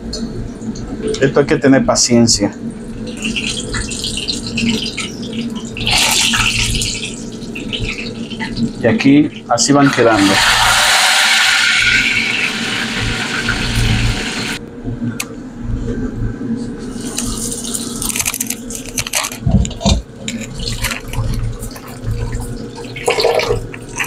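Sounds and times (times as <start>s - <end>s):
food sizzling in hot oil: 9.8s - 14.6s.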